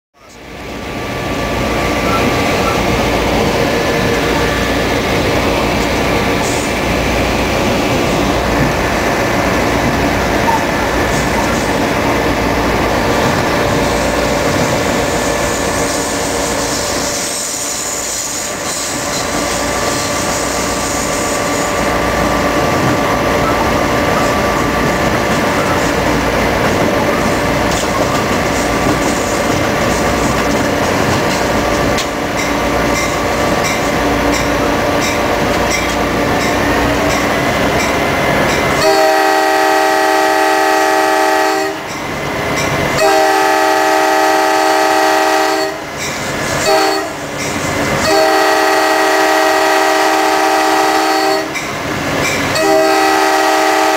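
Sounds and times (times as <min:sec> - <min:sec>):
diesel locomotive engine: 0:00.2 - 0:53.9.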